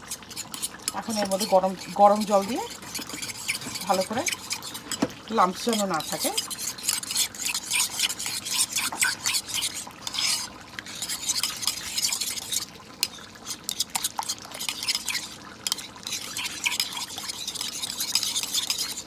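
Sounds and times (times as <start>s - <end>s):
spoon clinking and scraping container: 0.0s - 19.0s.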